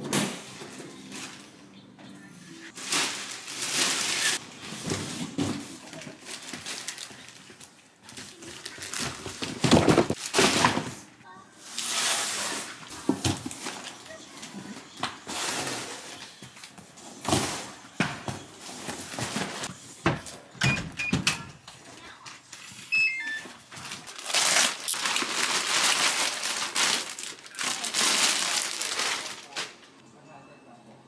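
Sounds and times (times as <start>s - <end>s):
plastic wrapping crinkling: 2.7s - 10.6s, 23.4s - 30.0s
short electronic beeps: 22.9s - 23.4s.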